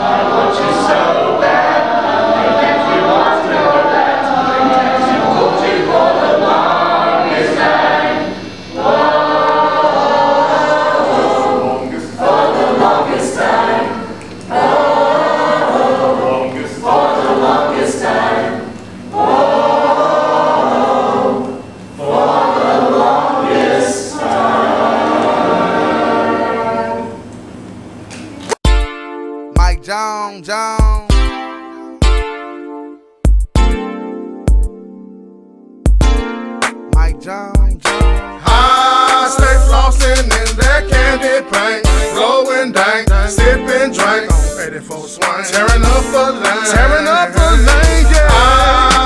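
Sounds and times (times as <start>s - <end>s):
mixed choir singing a cappella: 0.0s - 27.3s, 38.4s - 49.0s.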